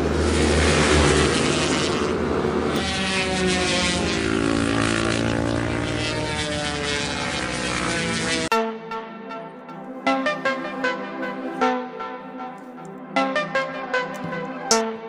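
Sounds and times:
motorcycle engine drone: 0:00.0 - 0:08.6.

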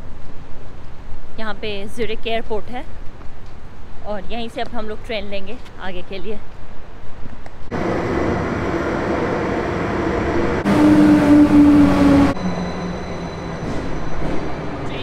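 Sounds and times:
train rumbling into station: 0:07.7 - 0:15.0.

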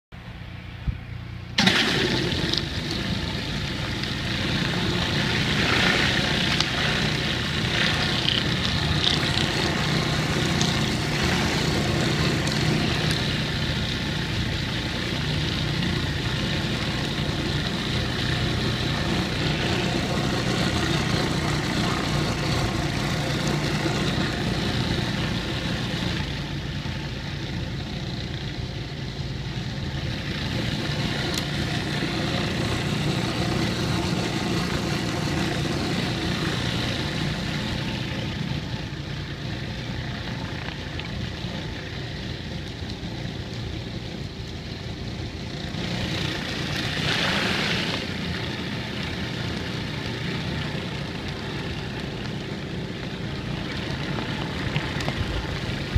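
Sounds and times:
pressure washer engine running: 0:01.4 - 0:55.9
water spray hissing on bricks: 0:01.6 - 0:28.7, 0:45.7 - 0:55.9.

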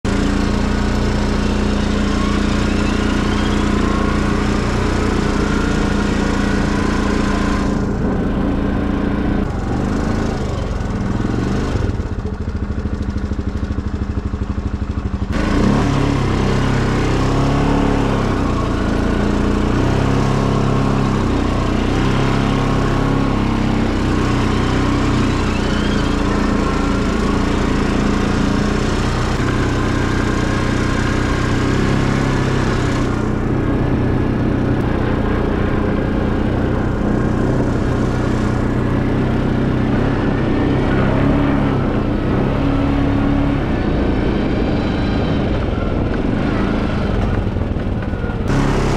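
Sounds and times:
tractor engine running: 0:00.0 - 0:48.9.

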